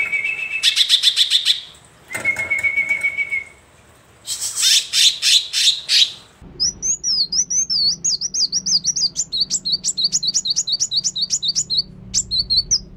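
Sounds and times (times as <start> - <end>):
high whistled chirps: 0.0 - 3.6, 4.3 - 12.9
songbird singing: 0.0 - 3.6, 4.3 - 12.9
harsh raspy bird calls: 4.3 - 12.9.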